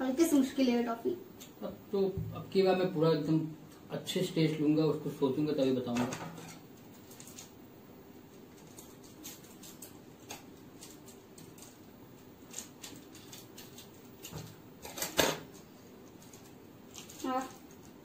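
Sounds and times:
plastic wrapper crinkling: 6.9 - 7.6, 8.5 - 18.0.

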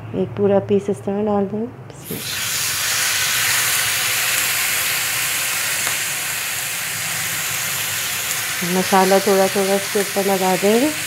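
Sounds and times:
steak sizzling in grill pan: 2.0 - 11.0.

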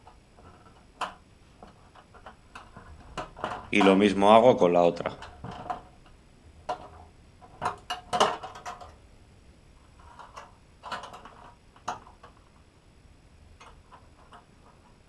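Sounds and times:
plastic clicks and rattles: 0.0 - 4.0, 5.0 - 9.0, 10.0 - 12.6.

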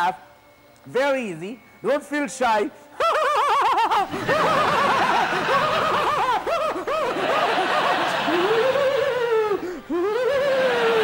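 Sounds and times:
man laughing loudly: 3.0 - 11.0.

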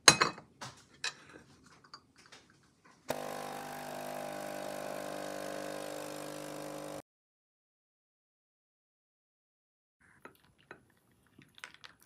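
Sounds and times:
coffee machine pump humming: 3.1 - 7.0
coffee pouring into mug: 3.1 - 7.0.

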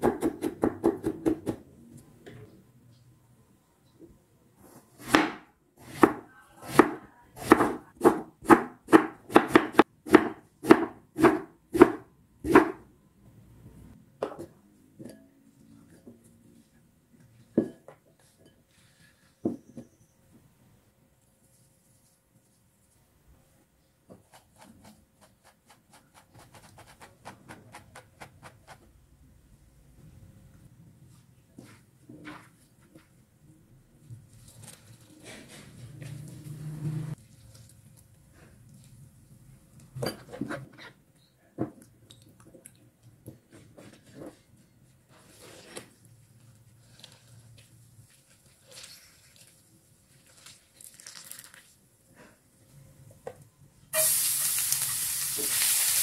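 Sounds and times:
soft rustle: 21.2 - 23.1, 43.8 - 51.8
crisp clicks and rustles in bowl: 46.9 - 51.8.

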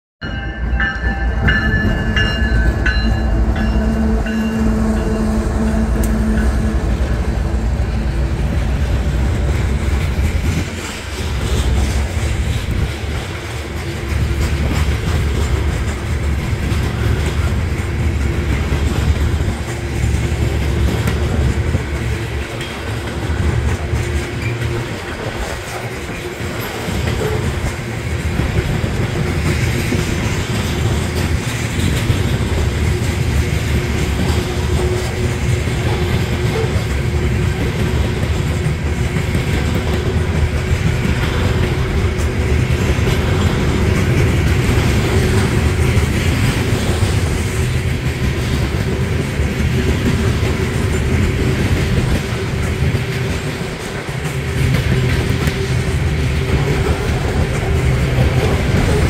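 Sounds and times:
crossing bell dinging: 0.2 - 7.8
freight train rumble and wheel clatter: 0.2 - 59.0
train horn: 1.1 - 9.3, 33.0 - 37.3.

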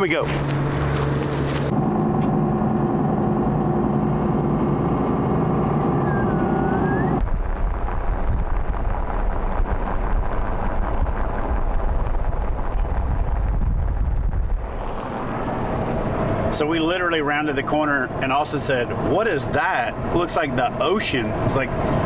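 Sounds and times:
road and wind noise: 0.0 - 22.0
drone of held tones: 1.7 - 7.2.

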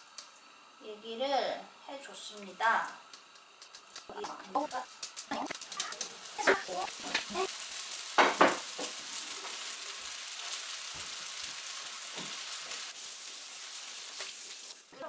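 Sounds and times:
seeds sizzling in a frying pan: 0.0 - 15.0
knocks in a frying pan: 8.1 - 9.0, 12.1 - 12.4.

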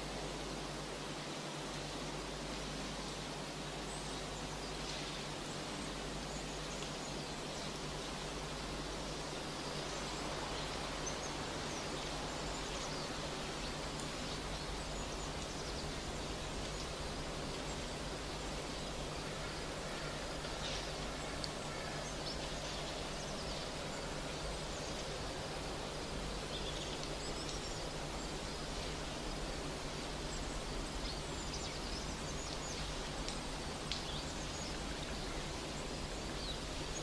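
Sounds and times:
outdoor background noise: 0.0 - 37.0.

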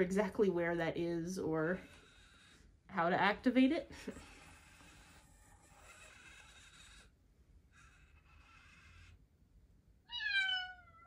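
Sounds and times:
electronic meow: 10.1 - 11.0.

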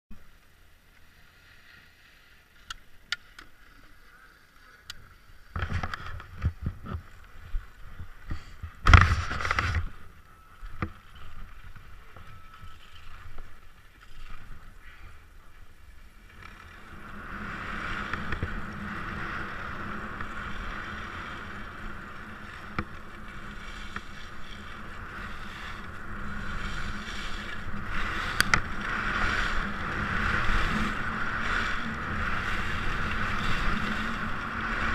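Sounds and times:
skis scraping on snow: 0.2 - 34.9
skis and gear clattering: 3.0 - 34.9
wind on microphone: 5.5 - 13.6, 16.4 - 34.9.

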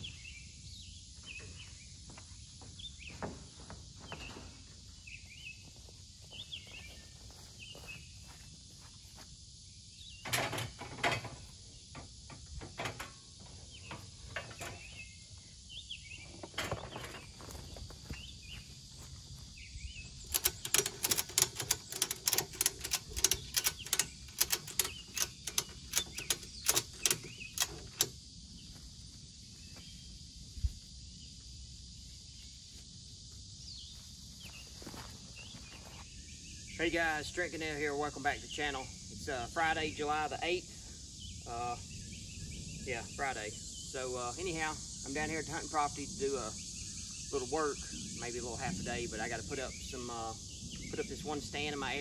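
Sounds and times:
metal clanks: 10.2 - 15.0, 20.2 - 28.2
ratchet strap clicking: 20.2 - 28.1.

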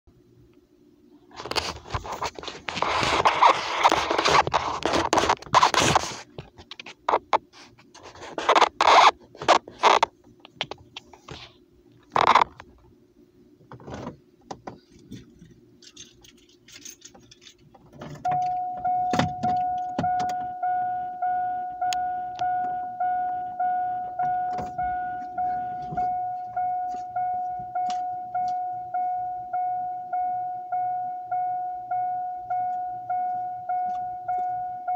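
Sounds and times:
keys jangling: 15.8 - 17.7
vehicle warning chime: 18.2 - 34.9.

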